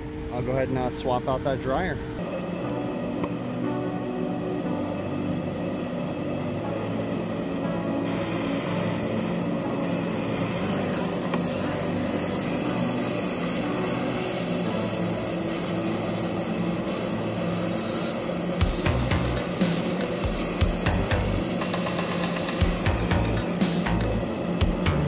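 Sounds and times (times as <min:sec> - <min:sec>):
machine running hum and hiss: 0:00.0 - 0:25.0.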